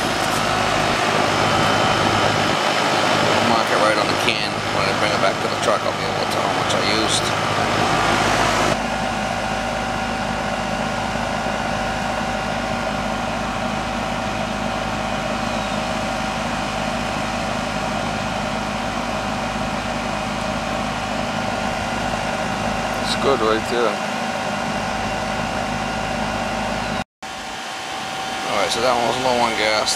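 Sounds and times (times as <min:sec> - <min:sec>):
loud rushing noise: 0:00.0 - 0:10.5
air conditioner unit humming: 0:00.0 - 0:29.9.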